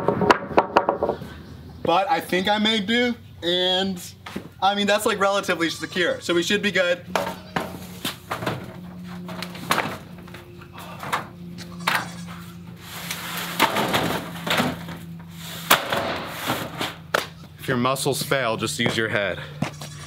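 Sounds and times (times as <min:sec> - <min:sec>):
metal roofing sheets clattering: 0:07.1 - 0:12.0, 0:13.0 - 0:17.1.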